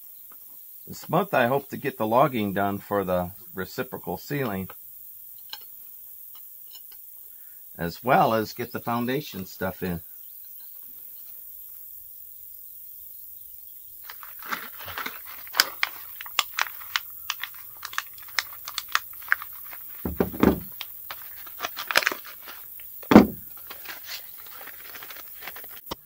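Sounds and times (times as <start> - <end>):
plastic and paper clicks and rattles: 14.0 - 26.0
heavy thunks of parts set down: 20.0 - 20.8, 23.0 - 23.6.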